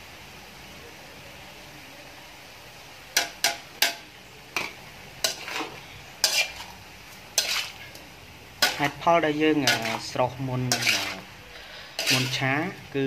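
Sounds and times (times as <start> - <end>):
faint sizzle: 0.0 - 13.0
utensils scraping metal wok: 3.2 - 13.0.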